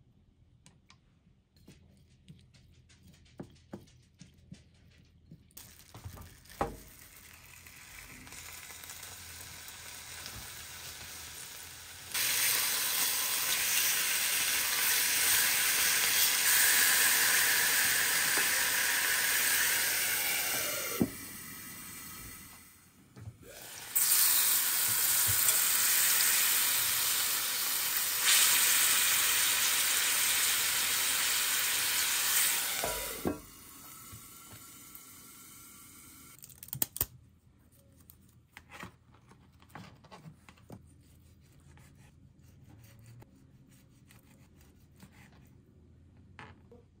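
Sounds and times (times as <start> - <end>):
chicken frying in a skillet: 5.6 - 20.2, 23.9 - 33.3.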